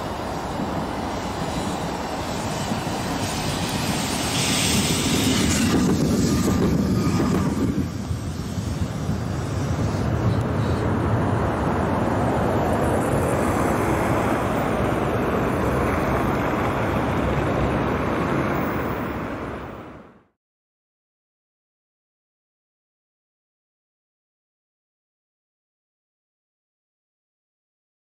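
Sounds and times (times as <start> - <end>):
wind on microphone: 0.0 - 20.0
tram passing: 0.0 - 20.4.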